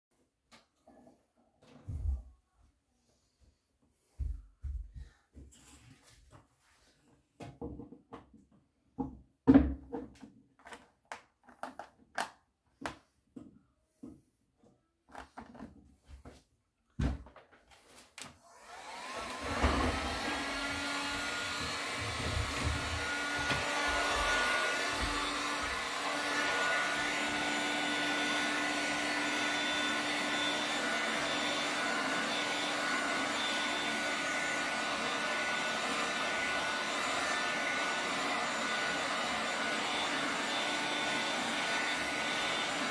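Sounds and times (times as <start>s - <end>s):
vacuum cleaner running: 18.4s - 42.9s.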